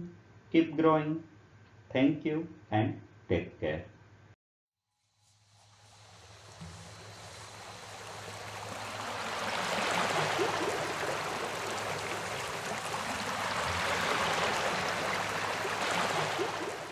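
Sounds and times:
surf washing up a beach: 5.3 - 16.9.

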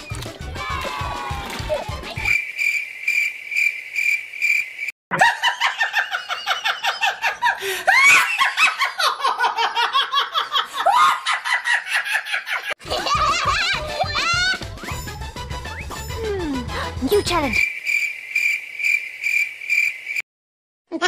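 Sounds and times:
rapid high-pitched laughter: 5.2 - 14.6.

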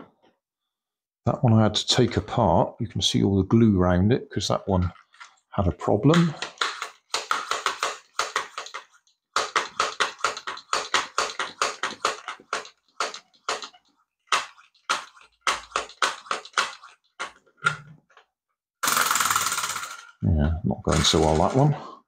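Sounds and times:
air pump puffing: 6.2 - 17.3, 18.8 - 20.0.

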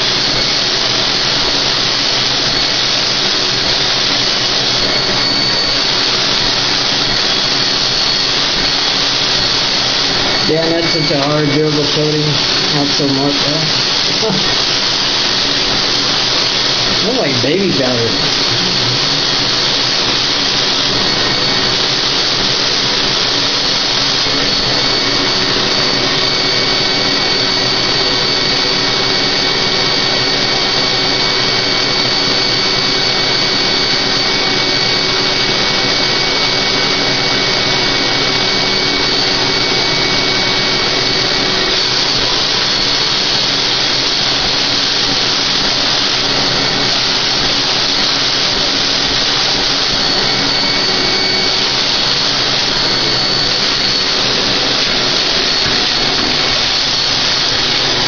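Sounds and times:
spray gun air rush: 0.0 - 33.6
high whine: 0.0 - 58.0.

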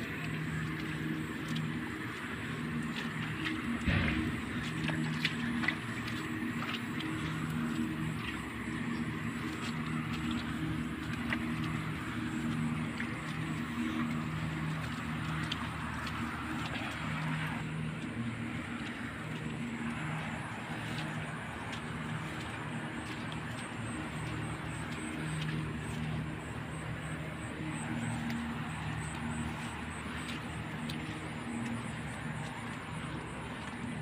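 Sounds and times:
low wavering hum: 0.0 - 34.0.

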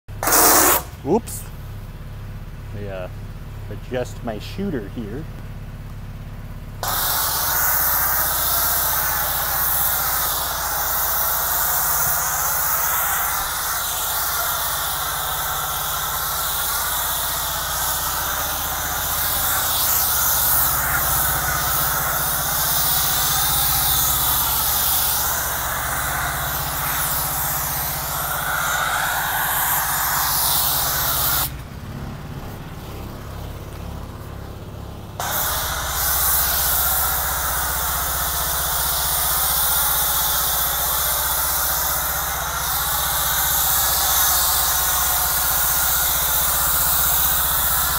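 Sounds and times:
foam cannon spraying hiss: 0.1 - 1.4, 6.8 - 31.6, 32.7 - 47.9
pressure washer running hum: 0.1 - 3.8, 5.0 - 47.9.

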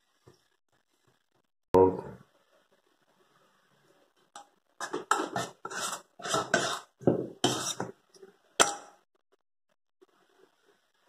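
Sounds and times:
metal utensil scraping a steel bowl: 4.8 - 7.9.

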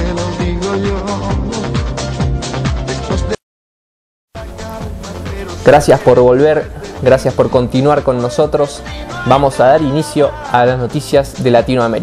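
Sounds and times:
background music: 0.0 - 3.4, 4.4 - 12.0
upbeat music with steady beat: 0.0 - 3.4, 4.4 - 12.0.

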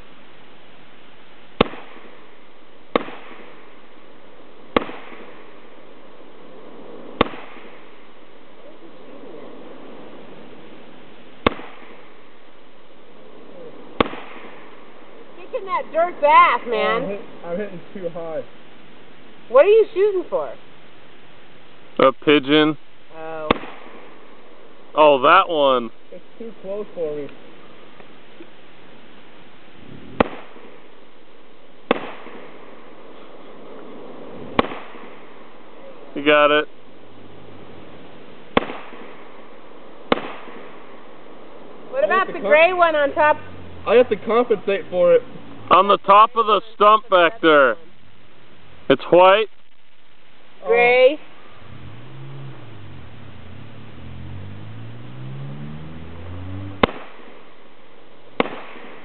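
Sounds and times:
rifle shots with echo: 1.6 - 2.2, 2.9 - 3.7, 4.7 - 5.6, 7.1 - 8.0, 11.4 - 12.2, 13.9 - 15.0, 23.5 - 24.3, 30.2 - 30.9, 31.9 - 32.9, 34.5 - 35.5, 38.5 - 41.1, 56.8 - 57.4, 58.4 - 59.0
low hum rising in pitch: 51.6 - 56.8.

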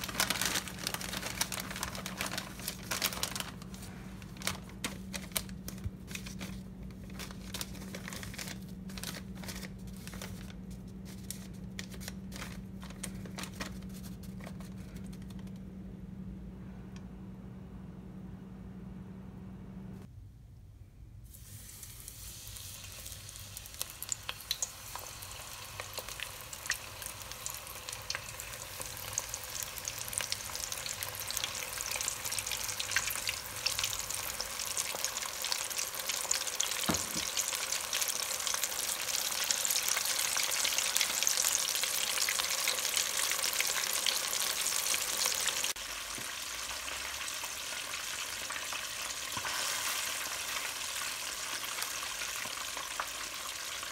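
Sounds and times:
chicken deep-frying in oil: 0.0 - 3.9, 21.3 - 53.9.

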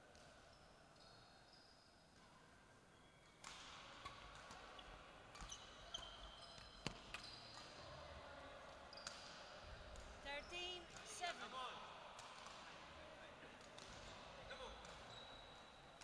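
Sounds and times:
shoes squeaking on court floor: 2.9 - 8.0, 8.9 - 9.4, 13.7 - 16.0.

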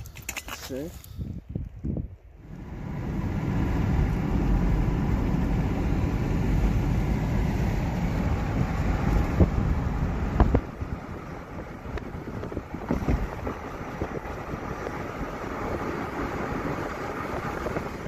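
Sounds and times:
road and wind noise: 0.0 - 18.0.

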